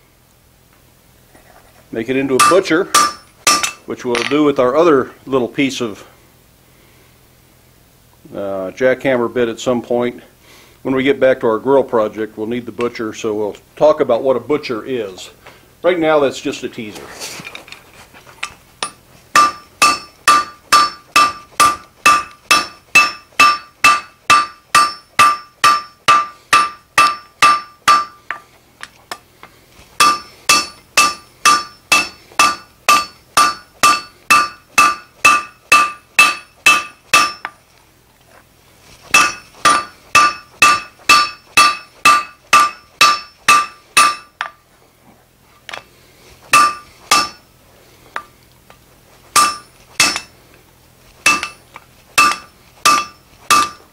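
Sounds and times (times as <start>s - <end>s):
hammer striking steel on anvil: 2.3s - 4.4s, 18.8s - 28.4s, 30.0s - 37.6s, 39.1s - 44.6s, 46.5s - 47.5s, 49.4s - 50.4s, 51.2s - 51.6s, 52.2s - 53.9s.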